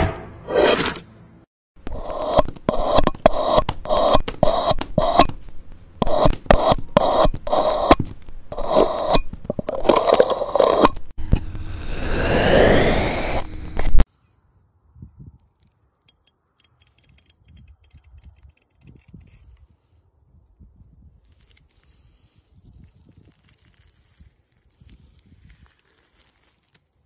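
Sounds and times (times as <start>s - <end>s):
knife scraping a block: 1.8s - 11.1s
tube squeaking in foam: 1.9s - 11.1s, 25.2s - 27.0s.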